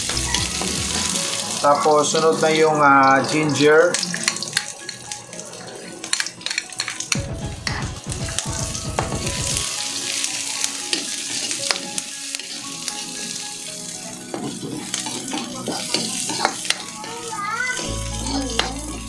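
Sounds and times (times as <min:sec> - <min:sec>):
food sizzling in hot oil: 0:00.0 - 0:19.0
ladle scraping wok: 0:14.3 - 0:19.0.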